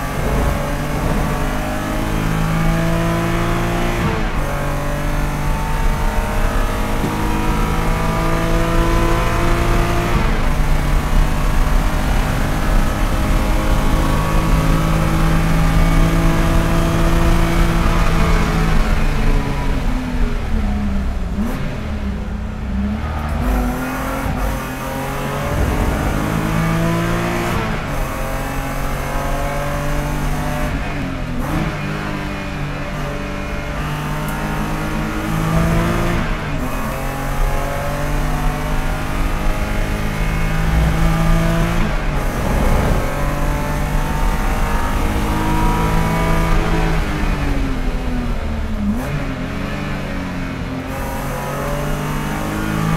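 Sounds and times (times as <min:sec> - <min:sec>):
race car engine accelerating: 0:00.0 - 0:52.9
wind and road noise: 0:00.0 - 0:52.9.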